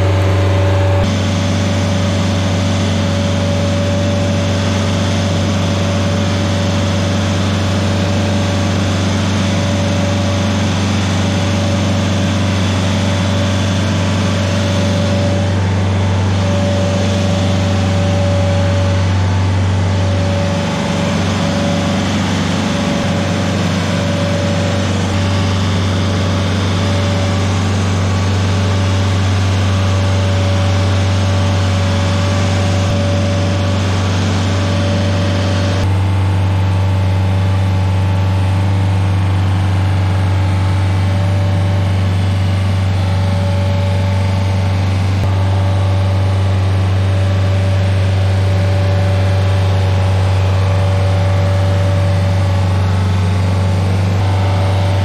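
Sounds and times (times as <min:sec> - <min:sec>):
stump grinder engine running: 0:00.0 - 0:55.0
thin steady whine: 0:00.0 - 0:55.0.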